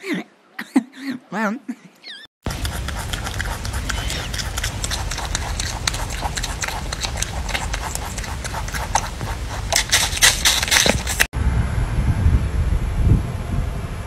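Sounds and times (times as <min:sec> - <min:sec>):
rabbit crunching apple: 0:02.5 - 0:11.3.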